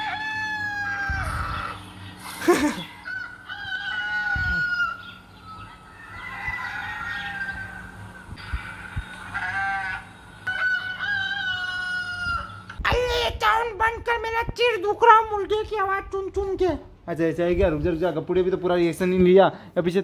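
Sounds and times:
rooster crowing from phone speaker: 0.0 - 1.8, 3.0 - 5.0, 6.0 - 12.6.

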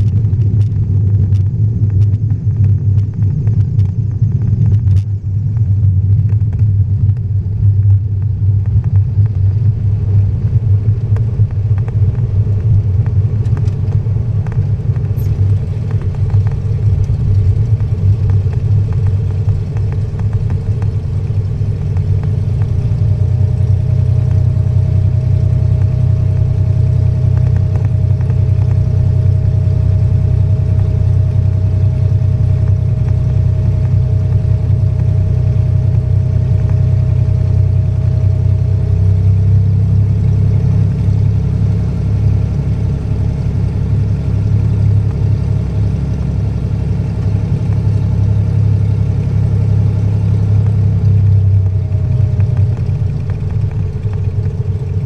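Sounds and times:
faint steady whine: 0.0 - 55.0
plane engine drone: 0.0 - 55.0.

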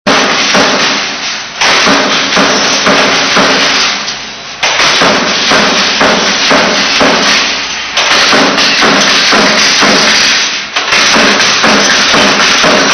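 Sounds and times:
music with percussive beat: 4.8 - 12.9.

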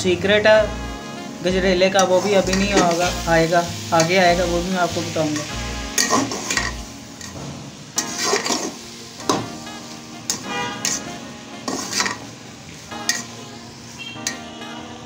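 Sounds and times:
metal ladle scraping a metal pot: 2.0 - 3.2, 5.3 - 7.4, 8.0 - 8.8, 10.3 - 12.3, 13.1 - 13.3.

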